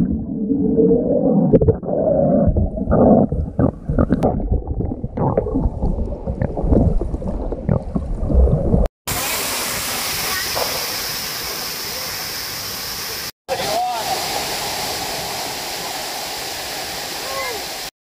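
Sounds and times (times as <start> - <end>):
waterfall rushing: 9.1 - 17.9.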